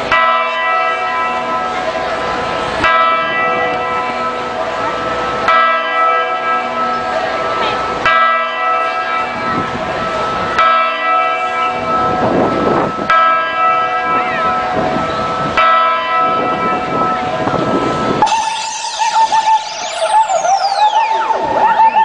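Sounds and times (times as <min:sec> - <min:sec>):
deep bell-like chime: 0:00.1 - 0:21.0
higher wavering melody: 0:17.0 - 0:22.0
sliding voice-like tones: 0:18.2 - 0:22.0.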